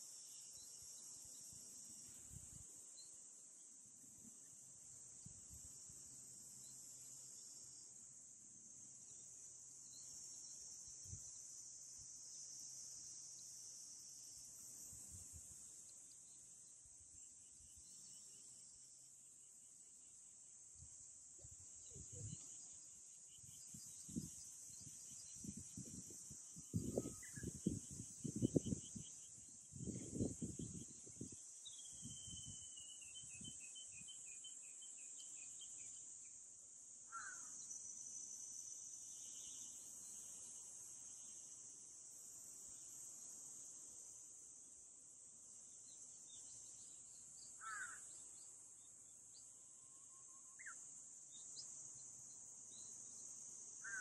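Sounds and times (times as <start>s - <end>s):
cicadas droning: 0.0s - 54.0s
harsh caw-like bird calls: 37.1s - 37.6s, 47.6s - 48.1s.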